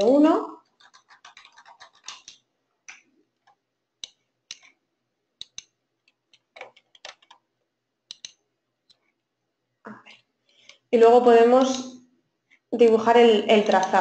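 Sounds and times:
computer mouse clicks: 0:00.7 - 0:04.8, 0:05.4 - 0:07.5, 0:08.1 - 0:09.2
keyboard taps: 0:05.4 - 0:07.4.

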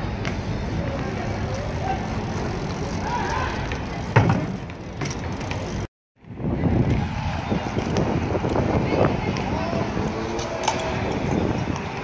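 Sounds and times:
steady outdoor noise: 0:00.0 - 0:12.0
bike wheel thump on asphalt: 0:03.1 - 0:05.8.

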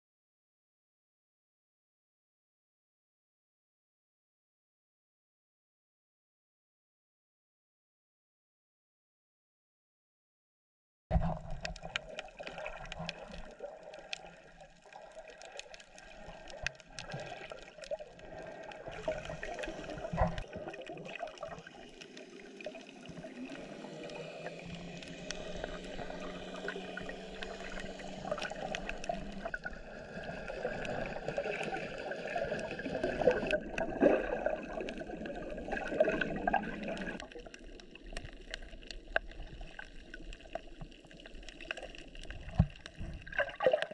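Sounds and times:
sharp clicks underwater: 0:11.1 - 0:43.9
underwater bubbling: 0:11.1 - 0:43.9
faint steady hum: 0:18.0 - 0:31.6.

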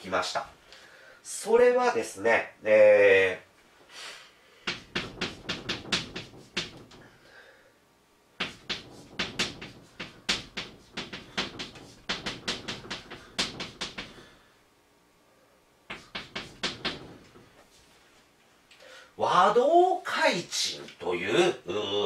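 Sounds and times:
chalk writing on a blackboard: 0:04.7 - 0:07.0, 0:08.4 - 0:14.2, 0:15.9 - 0:17.9.

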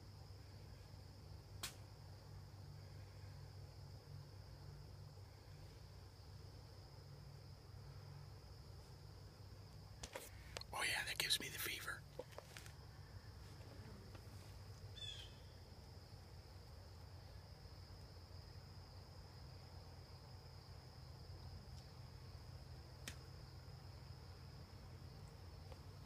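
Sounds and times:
crickets trilling: 0:00.0 - 0:26.0
sharp click: 0:01.6 - 0:01.8.

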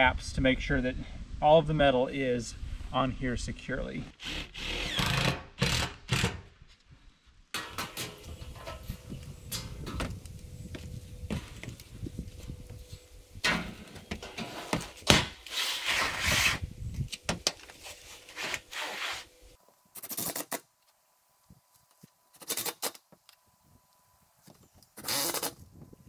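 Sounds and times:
metal roofing panel scraping: 0:07.6 - 0:10.2, 0:13.4 - 0:16.6.

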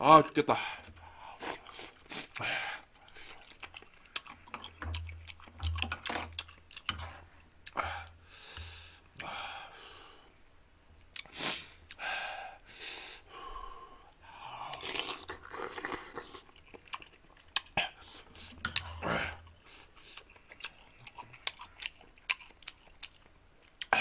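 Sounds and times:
person chewing and slurping noodles: 0:00.8 - 0:09.0, 0:14.4 - 0:24.0
person breathing hard: 0:07.8 - 0:10.3, 0:11.4 - 0:14.8.

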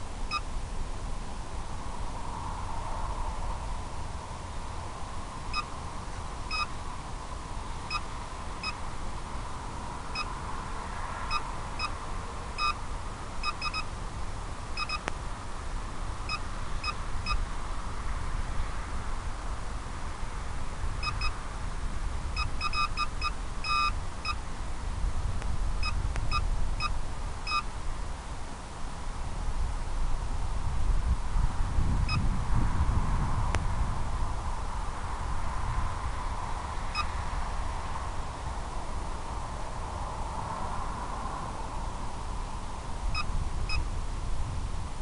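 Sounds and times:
short electronic beeps: 0:06.5 - 0:06.7, 0:07.9 - 0:08.8, 0:11.3 - 0:12.0, 0:12.6 - 0:12.8, 0:13.4 - 0:13.9, 0:14.8 - 0:15.0, 0:16.3 - 0:17.4, 0:21.0 - 0:21.4, 0:22.4 - 0:24.4, 0:25.8 - 0:27.7, 0:43.2 - 0:43.8.

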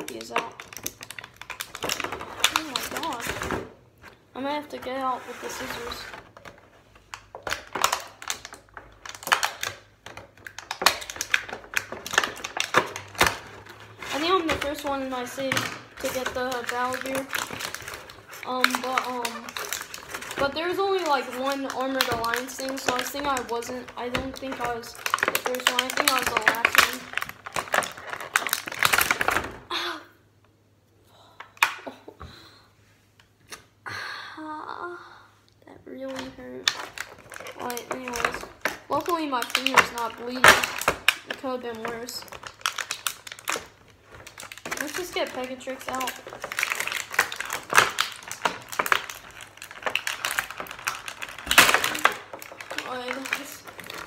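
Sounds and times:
plastic crackling: 0:00.0 - 0:29.7, 0:35.9 - 0:54.0
scissors snipping plastic: 0:07.1 - 0:29.4, 0:36.1 - 0:54.0.

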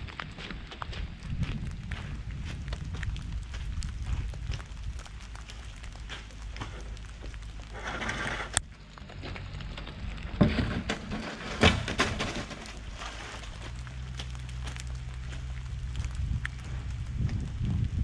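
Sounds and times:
plastic pipe dragged on gravel: 0:00.1 - 0:18.0
diesel excavator engine humming: 0:04.0 - 0:18.0.

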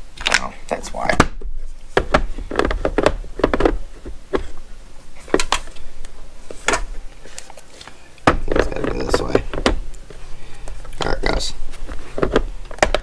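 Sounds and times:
plastic cases clacking and knocking: 0:01.0 - 0:04.6, 0:05.2 - 0:05.8, 0:08.2 - 0:10.2, 0:10.9 - 0:13.0
plastic rattling: 0:01.9 - 0:04.6, 0:08.2 - 0:10.2.

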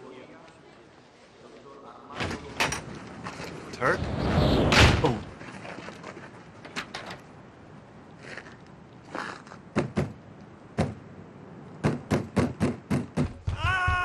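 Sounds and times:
fist pounding on metal door: 0:11.9 - 0:14.0.

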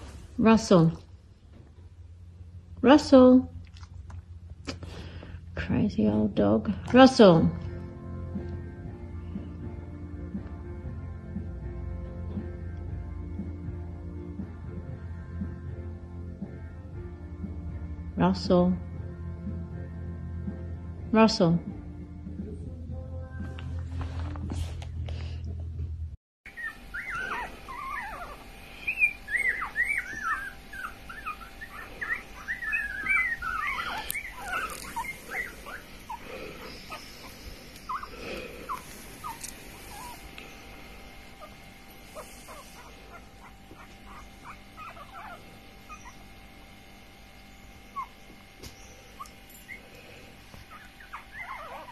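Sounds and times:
puppies squeaking and whimpering: 0:26.5 - 0:46.6, 0:47.4 - 0:51.9.

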